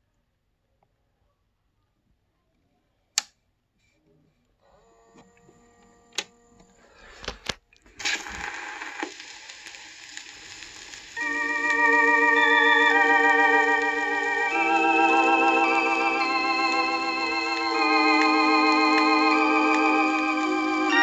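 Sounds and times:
record surface hiss: 6.1 - 21.0
organ music: 11.2 - 21.0.

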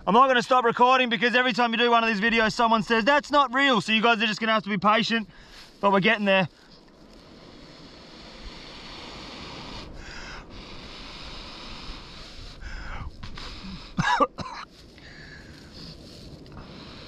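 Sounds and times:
wind: 0.0 - 17.0
person blowing on tinder: 7.2 - 14.0.

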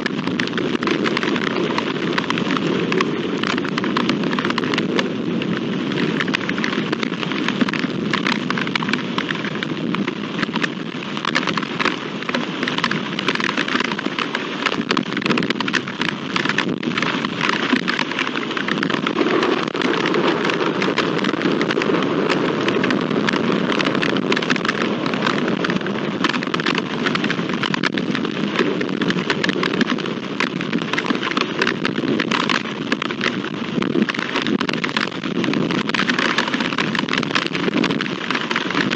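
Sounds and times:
heavy rain falling: 0.0 - 38.9.

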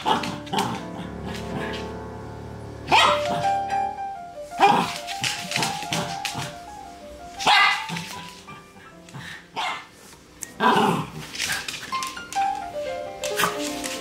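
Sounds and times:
song playing: 0.4 - 4.6
dog barking: 2.9 - 3.4, 7.4 - 8.3, 9.6 - 9.9.

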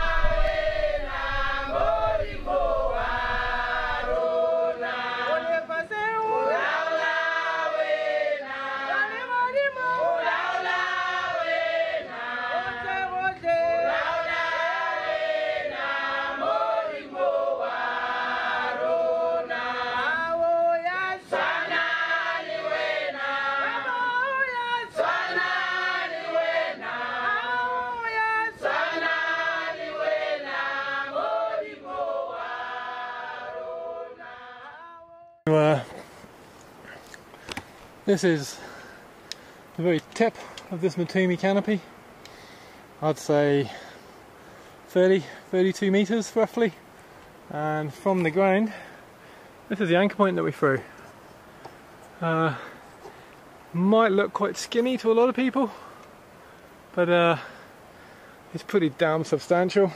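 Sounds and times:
choir singing: 0.0 - 35.5.

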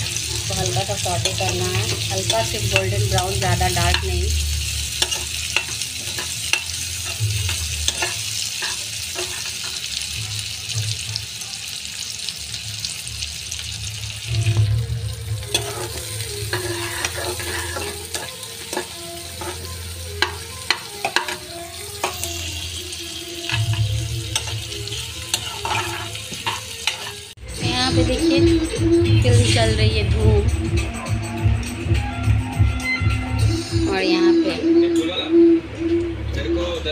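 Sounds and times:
metal spatula scraping a pan: 0.0 - 10.1, 14.3 - 27.4
onions sizzling in hot oil: 0.0 - 27.4.

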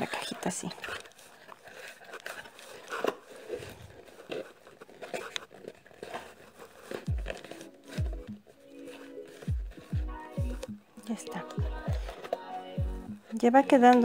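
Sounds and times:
cardboard box rustling and crinkling: 0.0 - 14.0
background music with low notes: 7.0 - 14.0.

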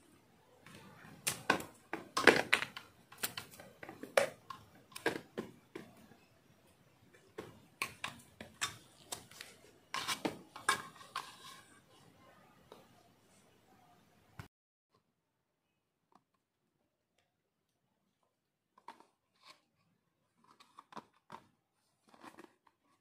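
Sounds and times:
plastic parts clicking and knocking: 0.6 - 6.3, 7.1 - 11.6, 20.3 - 23.0.

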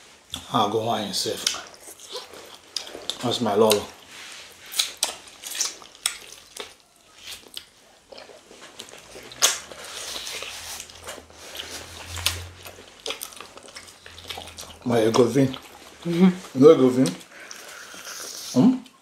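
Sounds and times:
wet chewing: 1.3 - 19.0
lip smacks: 4.6 - 15.8.

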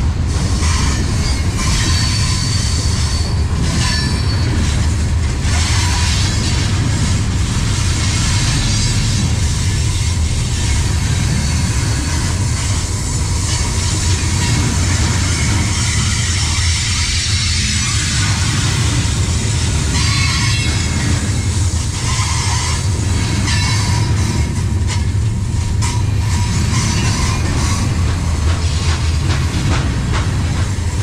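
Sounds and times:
train wheels rumbling on rails: 0.0 - 31.0
high wheel squeals: 0.6 - 4.6.

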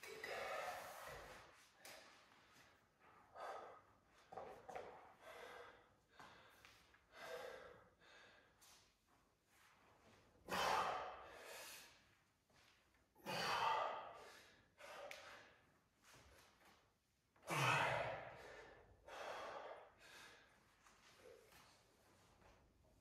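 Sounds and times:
man breathing hard: 3.2 - 4.1, 5.1 - 8.8, 10.5 - 12.1, 13.2 - 15.7, 17.5 - 20.8.

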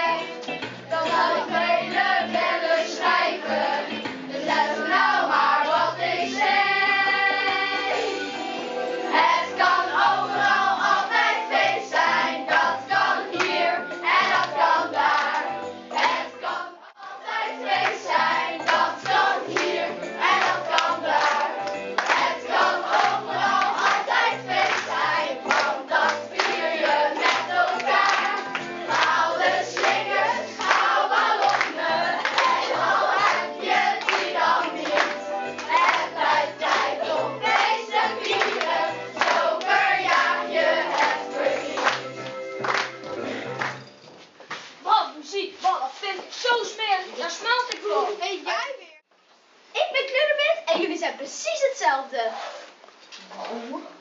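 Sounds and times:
children singing: 0.0 - 42.2.

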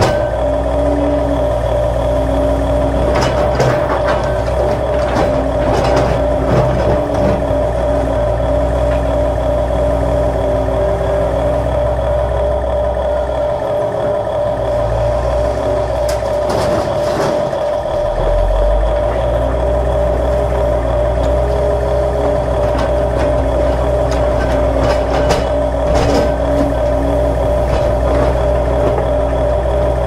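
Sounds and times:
toy excavator motor whine: 7.0 - 16.4.

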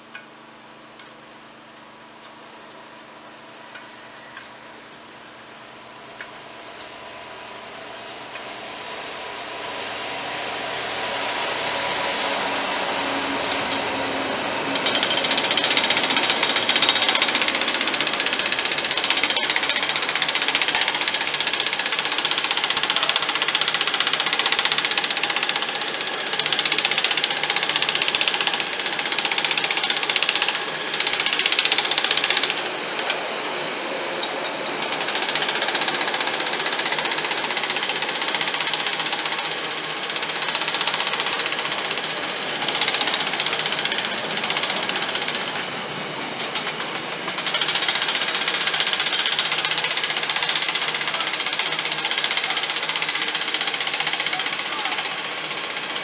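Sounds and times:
diesel locomotive engine: 0.0 - 56.0
high ringing hiss: 9.9 - 21.4
wheels rattling on rails: 41.4 - 51.0.

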